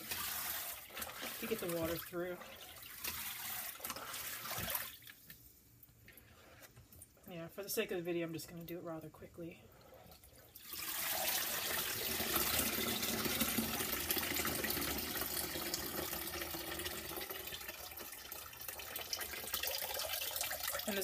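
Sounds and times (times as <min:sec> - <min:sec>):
water splashing into a tub: 0:00.0 - 0:05.5, 0:10.6 - 0:21.0.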